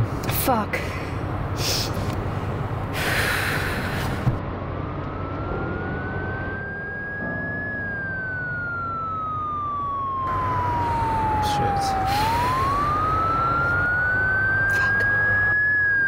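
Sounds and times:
steady low rumble: 0.0 - 15.6
police siren wailing: 4.4 - 16.0.

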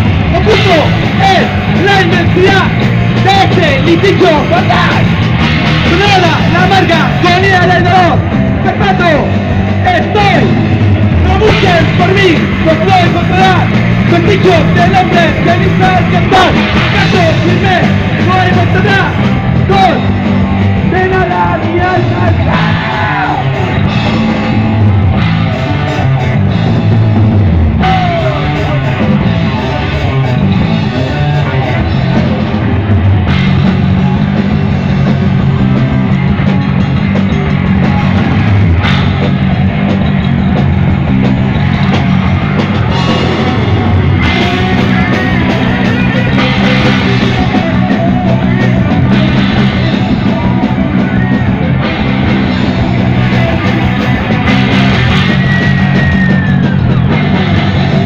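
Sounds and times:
drum kit: 0.0 - 58.0
electric guitar: 0.0 - 58.0
person singing: 27.8 - 32.5.

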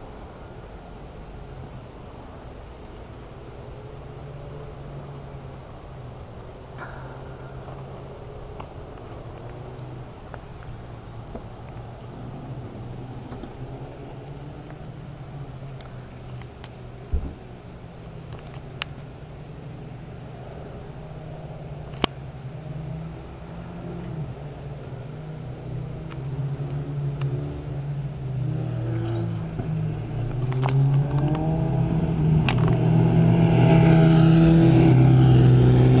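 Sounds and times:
low engine hum: 0.0 - 36.0
motorcycle accelerating past: 22.6 - 36.0.

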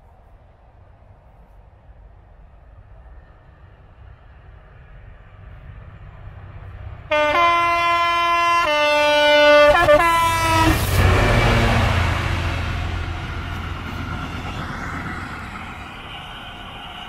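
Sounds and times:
diesel engine rumble: 1.2 - 17.0
locomotive two-tone horn: 7.1 - 12.2
train wheels on rails: 9.5 - 17.0.

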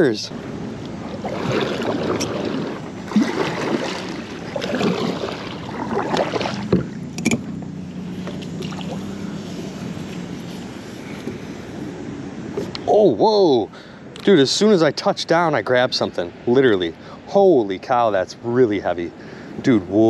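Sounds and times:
gentle water sound: 0.0 - 20.0
kayak paddle splashing water: 0.4 - 11.8
paddle knocks: 1.2 - 7.5.

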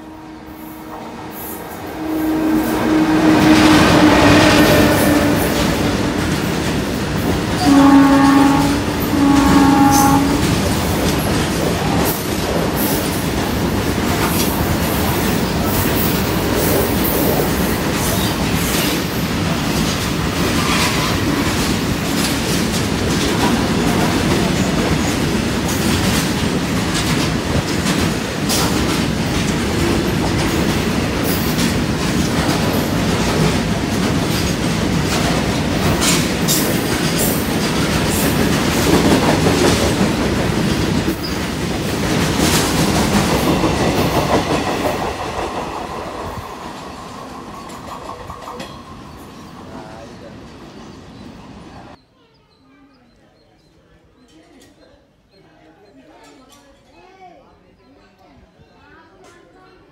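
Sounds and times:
train wheels rumbling on rail: 0.0 - 52.0
wheels clicking over rail joints: 9.0 - 45.5.

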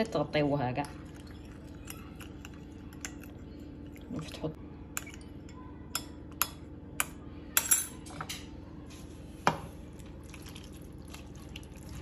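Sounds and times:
sauce pouring softly: 9.7 - 12.0.

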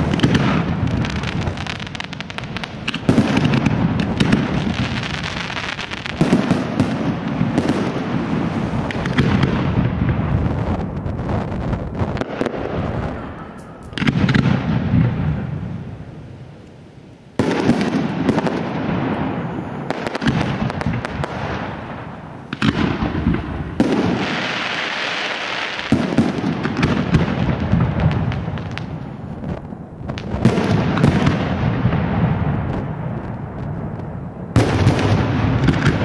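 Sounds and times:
fireworks hissing: 0.0 - 14.8, 17.3 - 27.0
fireworks bursting with bangs: 0.0 - 36.0.

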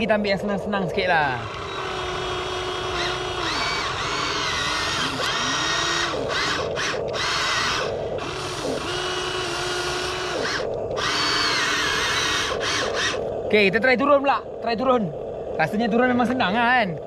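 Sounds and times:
toy excavator electric motors whining: 0.9 - 13.7.

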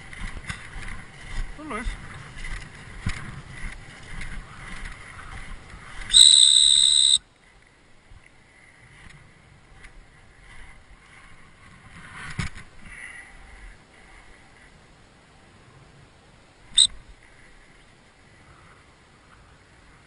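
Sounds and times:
low rustling: 0.0 - 20.0
high-pitched dog whistle blast: 6.1 - 7.2.

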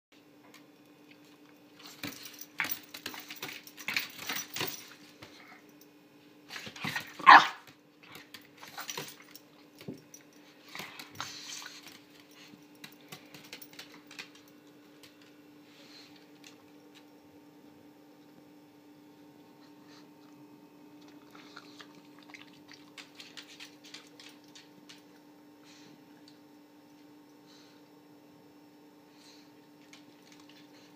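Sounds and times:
small dog barking: 7.1 - 7.7.

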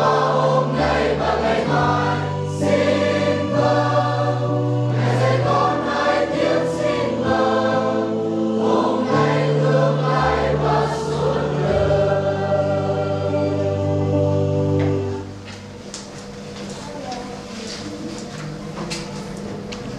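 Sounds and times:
choir and congregation singing hymn: 0.0 - 15.8.

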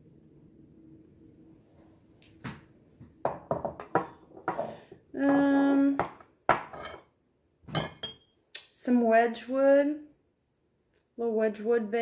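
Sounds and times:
ceramic pieces clinking: 5.3 - 7.0, 7.7 - 8.3.

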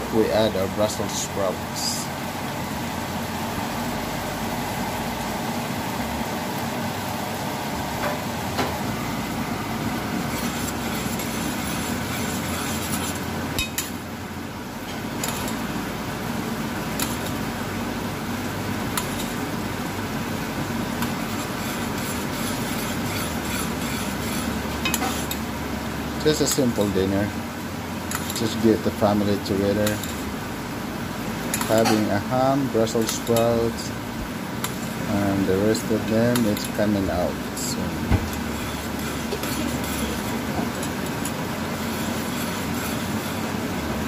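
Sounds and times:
glaze bubbling in a saucepan: 0.4 - 44.0
metal spoon stirring: 10.2 - 14.0, 14.9 - 15.6, 19.0 - 19.4, 21.0 - 25.4, 28.1 - 28.6, 31.5 - 32.2, 32.8 - 33.6, 35.7 - 43.5.

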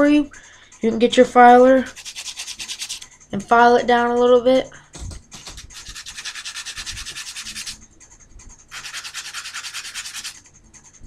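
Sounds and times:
file rasping on bamboo skewer: 1.9 - 3.2, 5.4 - 7.8, 8.7 - 11.0.

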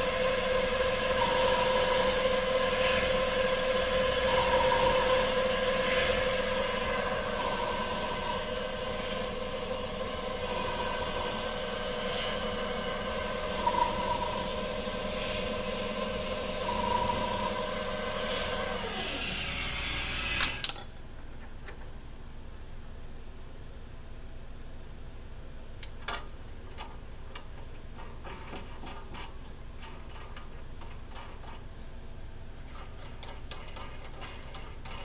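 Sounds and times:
lathe spindle whine: 0.0 - 20.6.

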